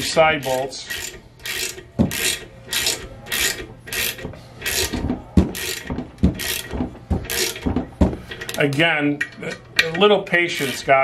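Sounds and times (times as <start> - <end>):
hand ratchet rasping: 0.0 - 8.8, 10.4 - 11.0
dull knocks: 5.0 - 8.2.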